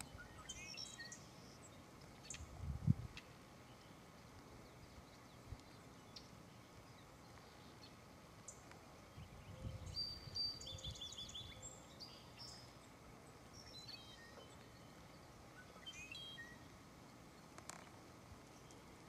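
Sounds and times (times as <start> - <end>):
small bird chirping: 0.0 - 2.6, 4.6 - 16.7.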